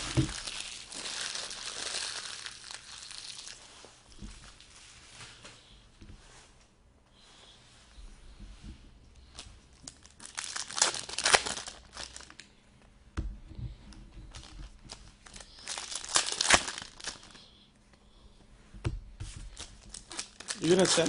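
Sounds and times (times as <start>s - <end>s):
foil wrapper crinkling and tearing: 0.0s - 4.8s, 9.3s - 12.5s, 14.3s - 17.5s, 19.5s - 21.0s
cards being handled: 19.2s - 21.0s.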